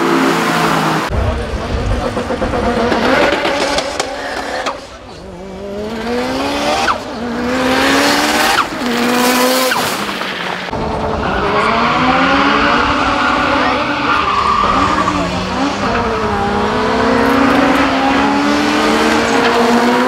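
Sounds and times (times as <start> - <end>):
car engine accelerating hard: 0.0 - 20.0.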